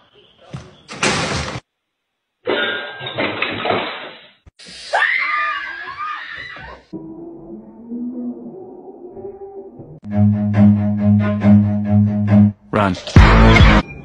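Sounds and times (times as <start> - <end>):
woman screaming: 4.9 - 6.8.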